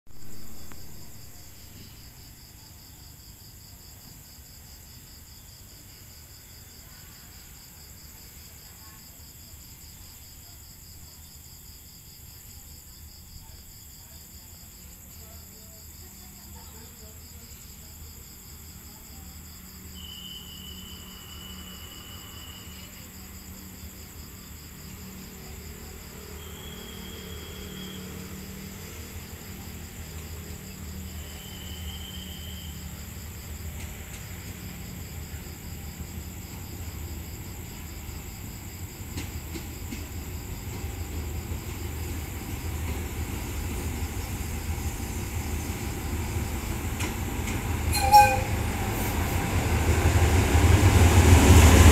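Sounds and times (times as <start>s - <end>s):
crickets chirping: 0.1s - 51.9s
diesel locomotive rumble: 39.0s - 51.9s
short high tones: 47.9s - 49.0s.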